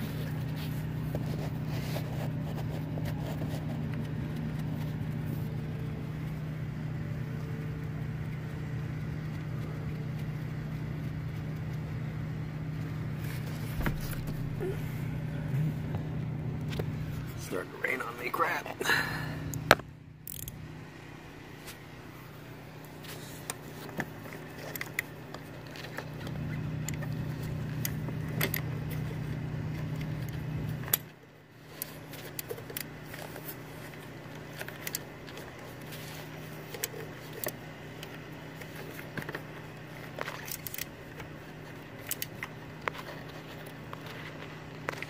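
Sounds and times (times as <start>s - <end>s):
steady low hum: 0.0s - 45.0s
wrench clinking against metal: 20.2s - 20.6s.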